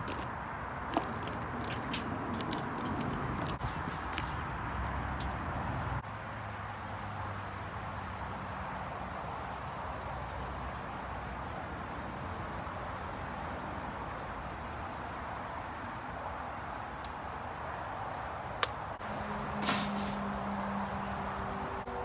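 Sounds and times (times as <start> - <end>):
metal clank: 19.6 - 20.2.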